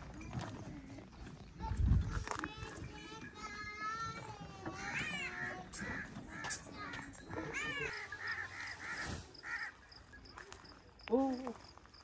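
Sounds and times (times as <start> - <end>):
crows cawing: 4.9 - 10.1.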